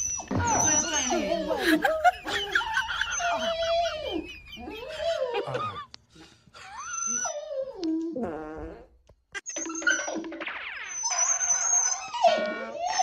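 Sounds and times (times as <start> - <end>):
dog yipping: 0.0 - 1.5, 2.3 - 5.4, 9.4 - 13.0
dog whining: 0.0 - 1.6, 2.3 - 5.8, 6.6 - 8.8, 9.4 - 13.0.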